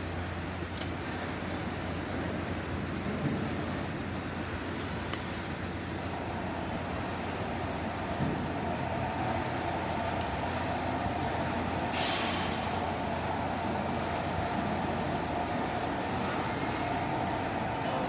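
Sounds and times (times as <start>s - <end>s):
workshop mechanical drone: 0.0s - 18.0s.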